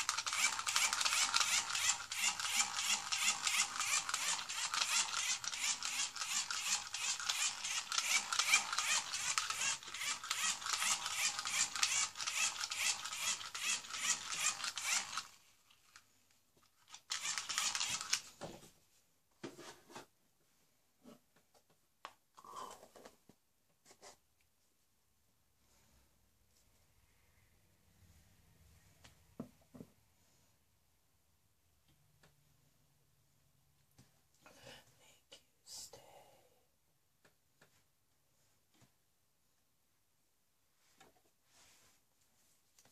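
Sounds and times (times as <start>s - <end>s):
plastic toy rattling: 0.0s - 16.0s, 16.8s - 18.3s.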